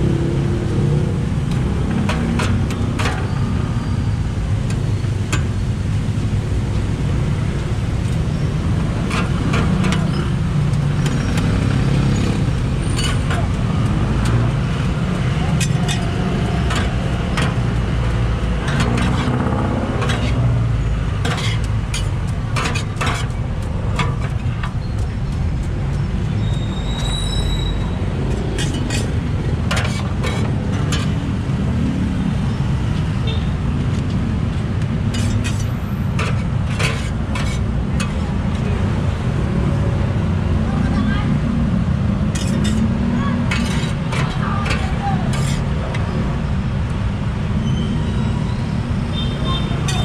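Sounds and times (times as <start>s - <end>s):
street traffic rumble: 0.0s - 50.0s
metal spatulas scraping griddle: 8.6s - 11.3s, 14.2s - 25.0s, 27.7s - 31.4s, 35.0s - 38.3s, 42.3s - 46.1s.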